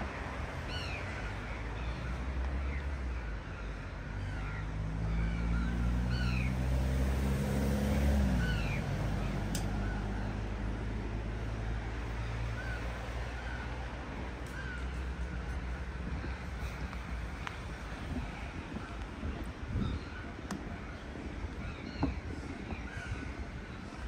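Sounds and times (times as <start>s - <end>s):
vehicle engine passing: 4.1s - 13.8s
small birds chirping: 8.2s - 10.5s, 14.4s - 24.0s.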